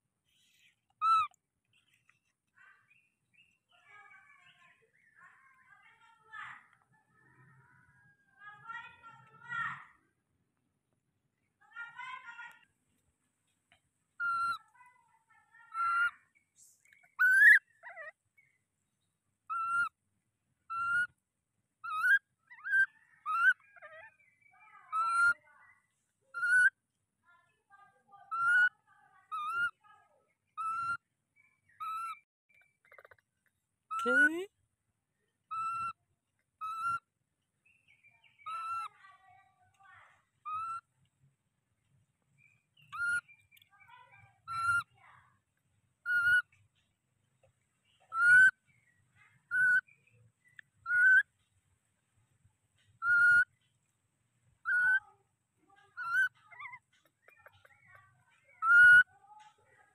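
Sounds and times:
baby monkey whistle-like coos: 0:01.0 - 0:01.4, 0:14.2 - 0:14.6, 0:15.7 - 0:16.1, 0:17.0 - 0:18.1, 0:19.5 - 0:20.0, 0:20.7 - 0:21.2, 0:21.8 - 0:24.2, 0:24.9 - 0:25.4, 0:26.3 - 0:26.8, 0:28.3 - 0:28.7, 0:30.6 - 0:31.0, 0:31.8 - 0:32.2, 0:35.5 - 0:36.0, 0:36.6 - 0:37.1, 0:38.4 - 0:38.9, 0:40.4 - 0:40.9, 0:42.8 - 0:43.3, 0:44.5 - 0:44.9, 0:46.0 - 0:46.5, 0:48.0 - 0:48.6, 0:49.4 - 0:49.9, 0:50.8 - 0:51.2, 0:53.0 - 0:53.5, 0:54.6 - 0:55.0, 0:55.9 - 0:56.8, 0:58.6 - 0:59.1.

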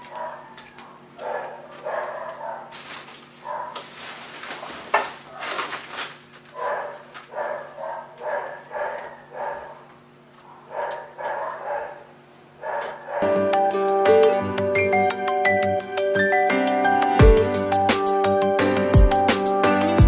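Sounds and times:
dog barking: 0:00.0 - 0:02.8, 0:03.4 - 0:03.9, 0:06.5 - 0:13.3.

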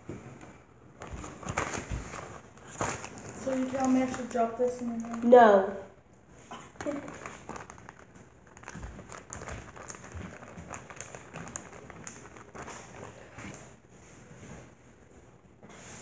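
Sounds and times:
plastic bag crinkling: 0:01.0 - 0:05.5, 0:06.6 - 0:13.7.

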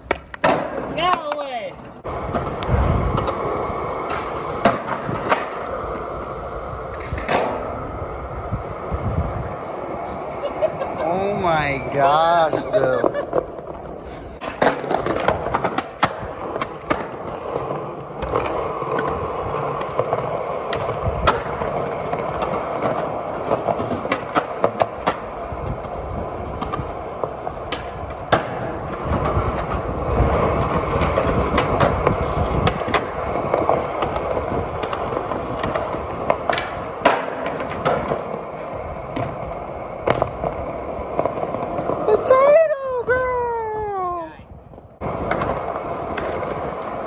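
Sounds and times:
skateboard clacking on pavement: 0:00.0 - 0:43.4, 0:44.7 - 0:47.0
skateboard wheels rolling on concrete: 0:00.0 - 0:47.0.

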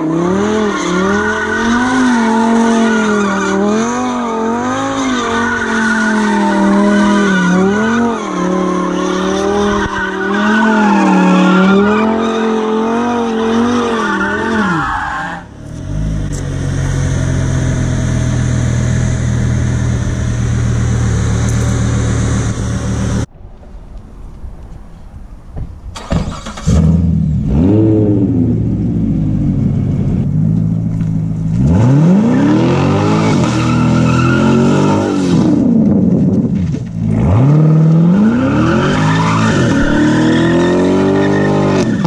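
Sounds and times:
tyres squealing on concrete: 0:00.4 - 0:15.5, 0:33.0 - 0:35.4, 0:38.2 - 0:42.0
car engine revving high: 0:26.4 - 0:30.3, 0:31.0 - 0:35.7.

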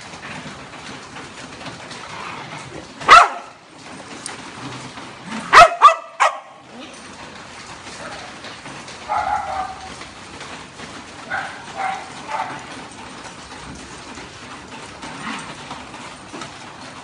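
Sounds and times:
hubbub of dogs moving: 0:00.0 - 0:17.0
dogs barking: 0:03.0 - 0:03.6, 0:05.3 - 0:06.7, 0:07.9 - 0:10.2, 0:11.2 - 0:13.0.

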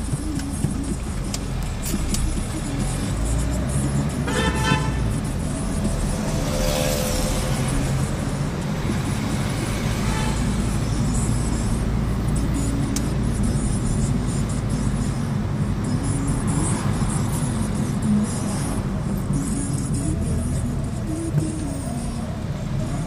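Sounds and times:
car engine and road rumble: 0:00.0 - 0:23.0
car horn toot: 0:04.1 - 0:05.2, 0:09.8 - 0:10.8.

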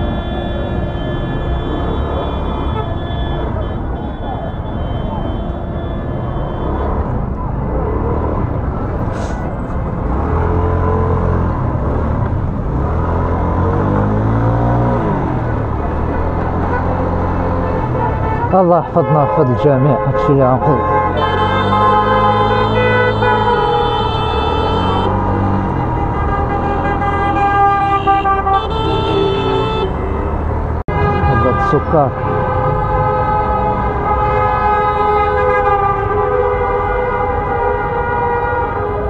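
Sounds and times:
car horns blaring: 0:00.0 - 0:07.4, 0:12.7 - 0:39.0
street noise: 0:00.0 - 0:39.0
vehicle engine revving: 0:06.3 - 0:18.4, 0:20.8 - 0:38.0.

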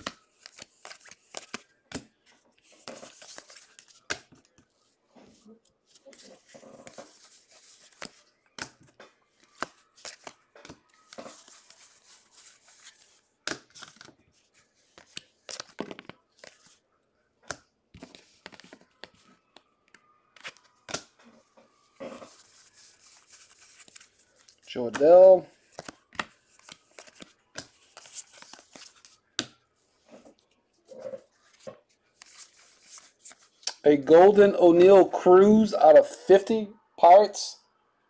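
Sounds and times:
cards clicking: 0:00.0 - 0:02.0, 0:09.4 - 0:14.1, 0:25.7 - 0:29.6
cards swishing against each other: 0:00.0 - 0:04.6, 0:05.2 - 0:08.8, 0:09.4 - 0:16.8, 0:21.8 - 0:30.1, 0:30.9 - 0:33.8.

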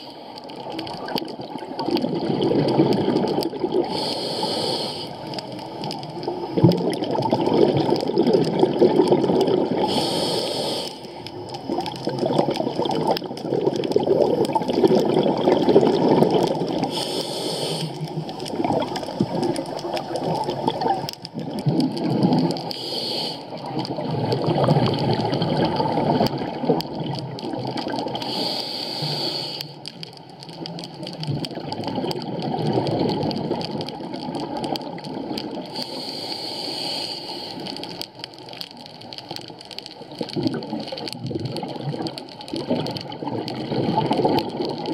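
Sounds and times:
regulator inhale hiss: 0:00.0 - 0:00.5, 0:03.8 - 0:05.5, 0:09.8 - 0:11.3, 0:16.8 - 0:18.4, 0:22.6 - 0:23.7, 0:28.1 - 0:29.9, 0:35.7 - 0:38.0
exhaled air bubbling: 0:00.0 - 0:44.9.

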